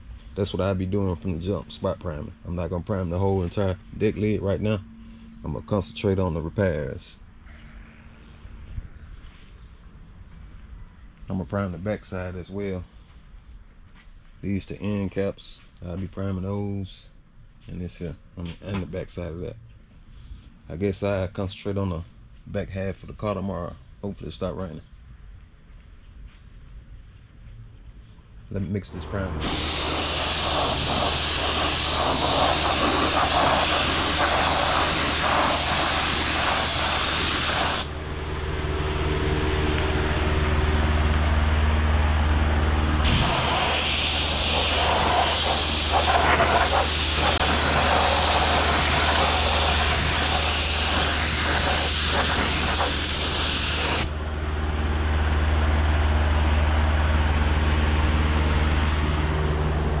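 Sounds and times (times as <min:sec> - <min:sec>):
low machine hum: 0:00.0 - 1:00.0
spray gun hissing: 0:29.4 - 0:38.0, 0:43.0 - 0:54.2.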